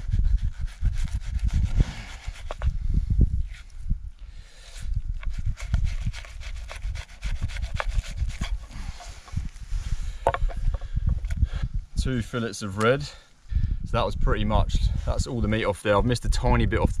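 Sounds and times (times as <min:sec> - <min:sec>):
knife scraping on wooden board: 0:04.7 - 0:09.4
knife slicing fish: 0:05.3 - 0:08.6.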